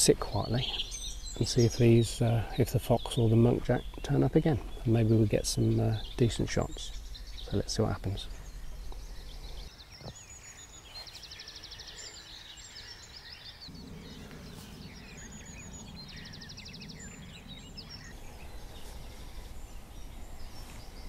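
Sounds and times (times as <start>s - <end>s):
small songbirds chirping: 0.0s - 21.0s
faint low rumble: 0.2s - 9.7s, 13.7s - 21.0s
bird trill: 0.3s - 21.0s.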